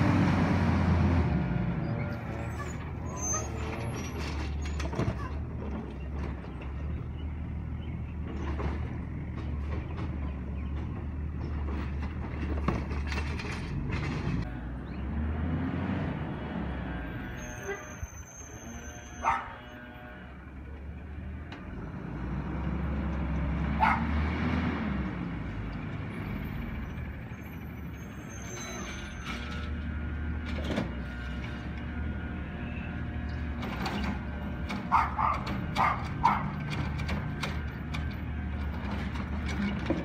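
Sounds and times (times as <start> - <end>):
diesel engine rumbling: 0.0 - 40.0
dog barking: 19.2 - 19.6, 23.8 - 24.1, 34.9 - 36.6.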